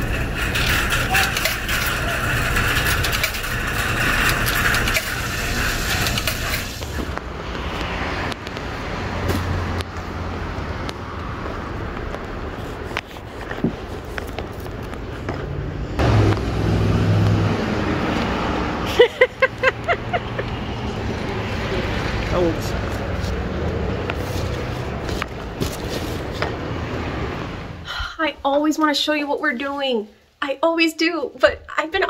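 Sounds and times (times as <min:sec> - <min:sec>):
washers and dryers running: 0:00.0 - 0:08.2, 0:13.2 - 0:27.8
traffic hum: 0:00.0 - 0:29.9.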